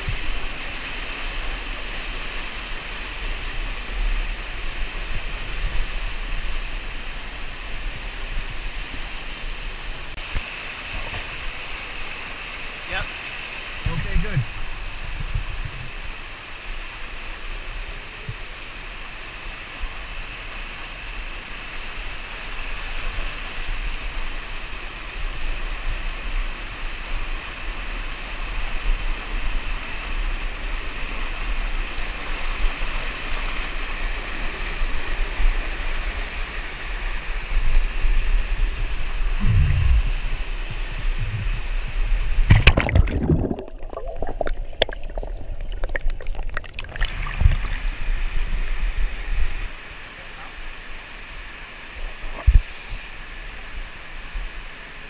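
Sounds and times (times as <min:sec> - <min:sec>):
muffled low rumble: 0:39.3 - 0:49.6
river rushing over rocks: 0:40.0 - 0:55.0.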